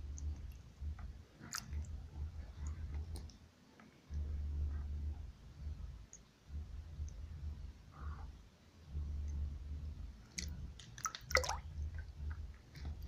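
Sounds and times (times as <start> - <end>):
hand moving in water: 0.0 - 3.4, 10.3 - 13.0
low rumble on microphone: 0.0 - 13.0.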